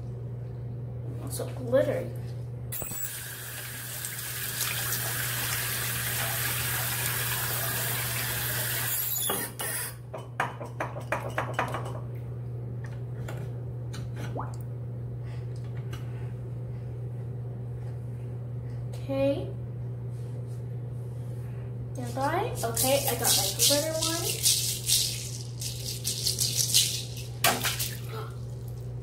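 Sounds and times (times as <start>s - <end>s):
constant low hum: 0.0s - 3.0s, 10.0s - 29.0s.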